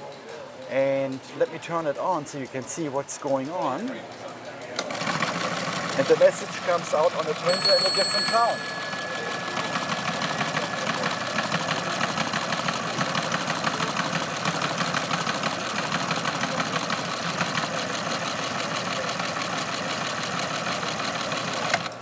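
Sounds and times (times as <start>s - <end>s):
telegram printer mechanical clatter: 4.5s - 8.7s, 9.4s - 22.0s.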